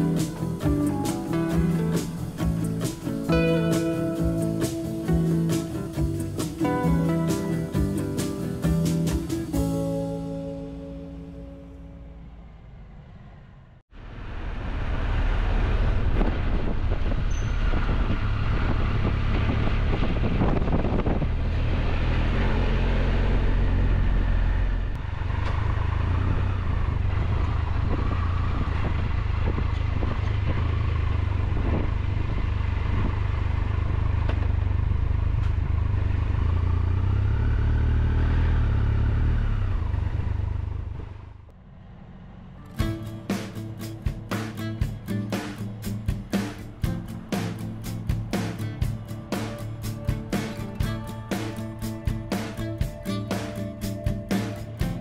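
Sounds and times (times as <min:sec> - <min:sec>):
road noise: 0:00.0 - 0:55.0
motorcycle engine running: 0:14.7 - 0:55.0.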